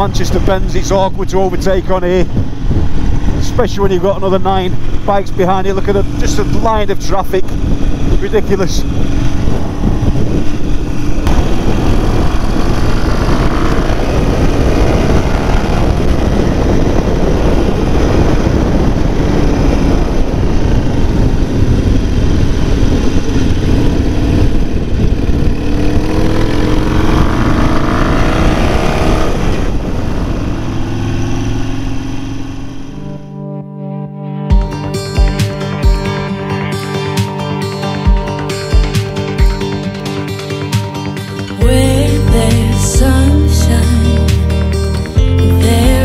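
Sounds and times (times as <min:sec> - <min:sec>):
wind rush: 0:00.0 - 0:33.3
motorcycle engine at speed: 0:00.0 - 0:33.4.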